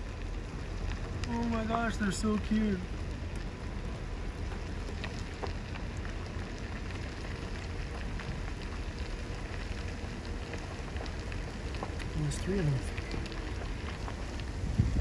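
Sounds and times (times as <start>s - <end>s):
light crackles: 0.0s - 15.0s
vehicle rumbling on gravel: 0.0s - 15.0s.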